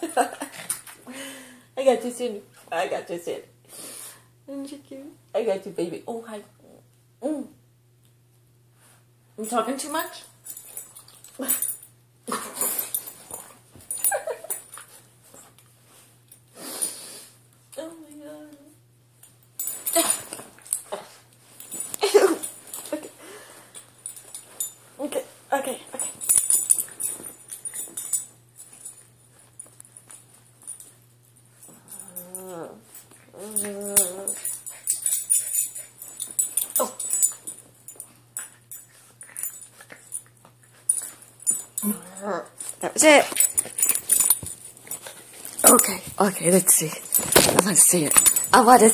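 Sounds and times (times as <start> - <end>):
bedding rustling: 19.6 - 48.9
small dog whimpering: 32.0 - 34.4.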